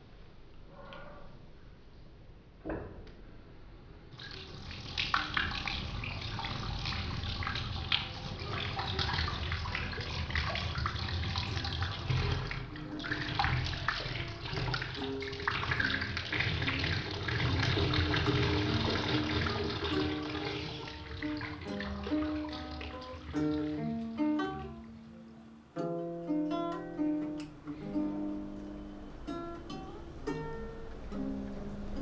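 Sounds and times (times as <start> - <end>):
tap water splashing into sink: 4.2 - 24.9
low held musical notes: 4.5 - 32.0.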